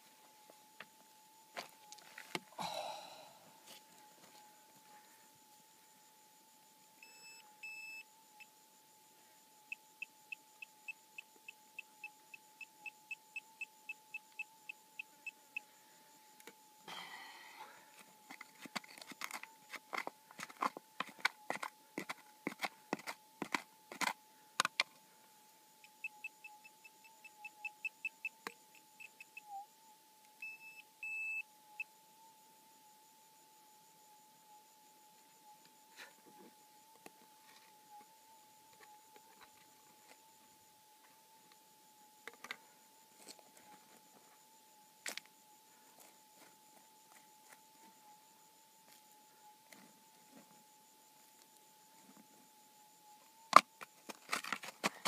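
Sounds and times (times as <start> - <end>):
pinpointer beeping: 7.0 - 8.1, 30.4 - 31.9
rocks knocking and scraping: 18.3 - 24.7.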